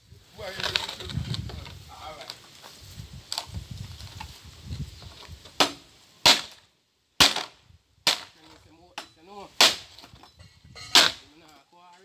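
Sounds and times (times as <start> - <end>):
machete chopping bamboo: 5.6 - 6.6, 7.2 - 8.4, 9.6 - 10.0.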